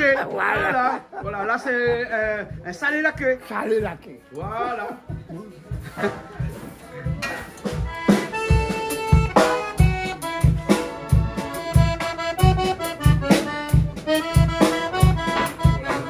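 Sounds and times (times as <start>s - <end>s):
low bass beat: 0.0s - 16.0s
accordion melody: 7.6s - 16.0s.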